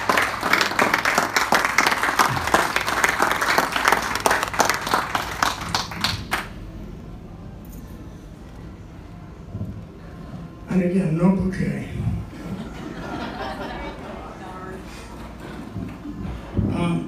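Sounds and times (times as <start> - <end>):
crowd applauding: 0.0 - 6.6.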